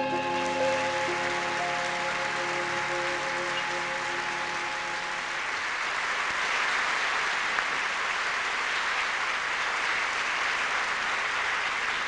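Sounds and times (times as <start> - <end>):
orchestra held chord: 0.0 - 5.9
audience applauding: 0.0 - 12.0.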